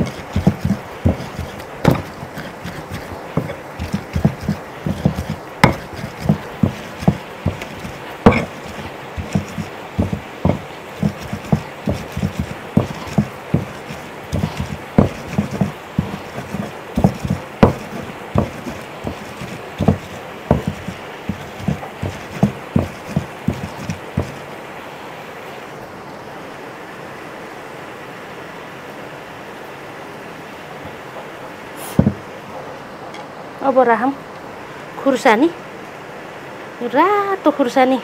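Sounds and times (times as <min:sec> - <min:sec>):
stone pounding garlic: 0:00.0 - 0:24.5, 0:32.0 - 0:32.2
stone-on-stone clacks: 0:00.0 - 0:24.5.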